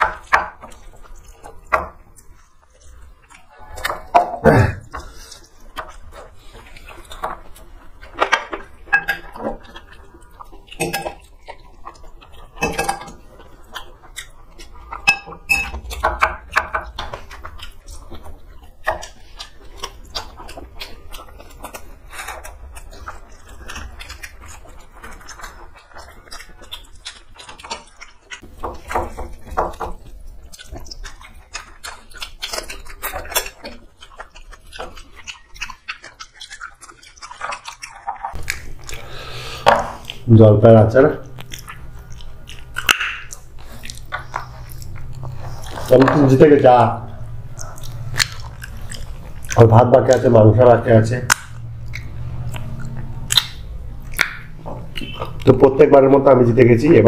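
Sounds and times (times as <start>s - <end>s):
chewing and mouth sounds: 0.0s - 57.0s
spoon clinking on steel plates: 15.0s - 15.8s.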